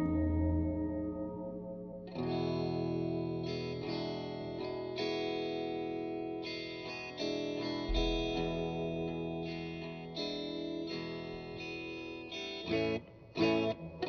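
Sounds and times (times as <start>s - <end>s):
deep bass note: 0.0s - 1.6s
psychedelic rock guitar music: 0.0s - 14.0s.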